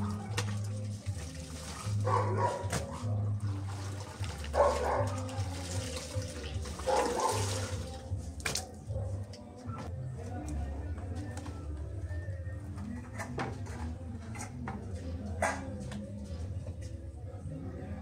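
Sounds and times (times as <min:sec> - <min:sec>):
water sloshing and splashing: 0:00.0 - 0:09.4.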